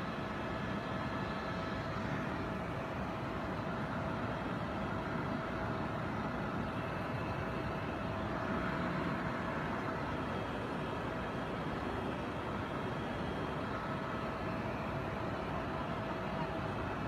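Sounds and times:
faint whine: 0:00.0 - 0:17.0
helicopter engine and rotor drone: 0:00.0 - 0:17.0.

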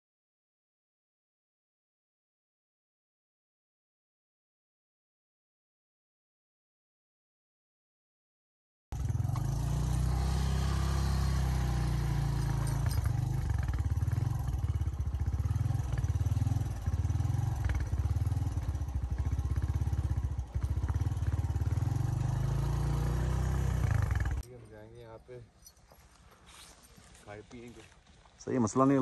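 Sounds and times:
motorcycle engine running: 0:09.0 - 0:24.4.

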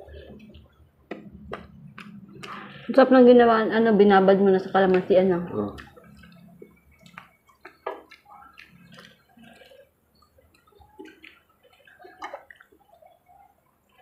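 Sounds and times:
wet chewing and lip smacking: 0:05.7 - 0:14.0.

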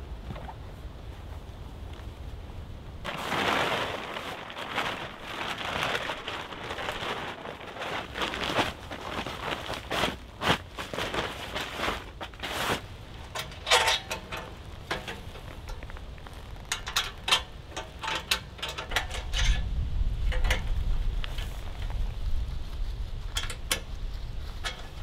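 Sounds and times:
rustling: 0:00.1 - 0:25.0
metal clinks and rattles: 0:13.3 - 0:15.8, 0:16.7 - 0:19.7.

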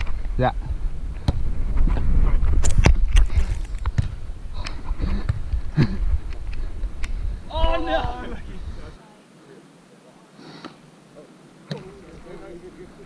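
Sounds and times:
wind rumbling on microphone: 0:00.0 - 0:09.0.

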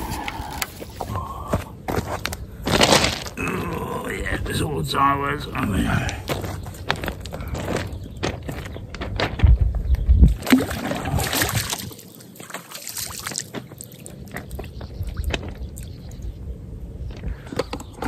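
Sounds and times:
water splashing and sloshing: 0:10.3 - 0:16.2.

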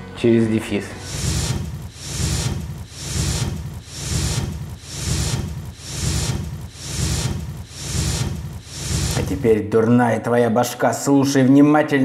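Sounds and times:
rumbling pulses with hiss: 0:00.9 - 0:09.6.

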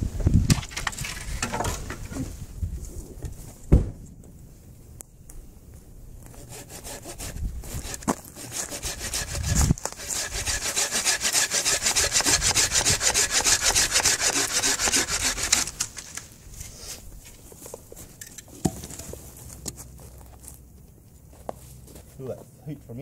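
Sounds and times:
thump: 0:03.7 - 0:04.1
hand saw cutting wood: 0:06.3 - 0:16.1.

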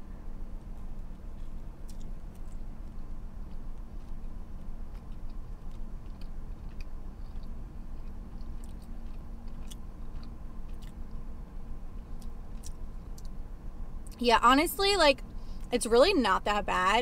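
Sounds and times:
steady low hum: 0:00.0 - 0:17.0
person chewing: 0:00.8 - 0:11.2, 0:12.0 - 0:13.4.

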